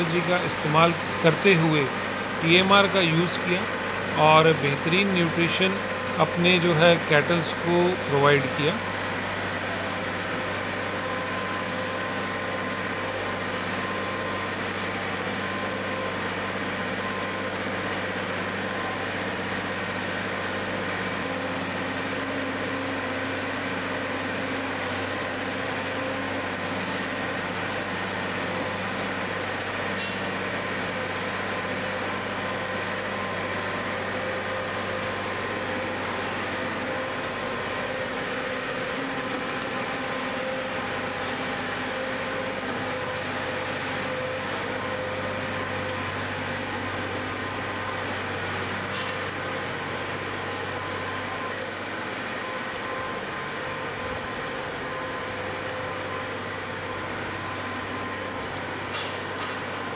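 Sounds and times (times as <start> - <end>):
tractor and mixer wagon humming: 0.0 - 59.9.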